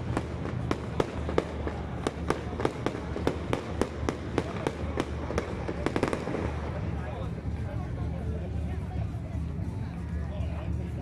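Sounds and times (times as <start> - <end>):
fireworks bangs: 0.0 - 7.0
steady low rumble: 0.0 - 11.0.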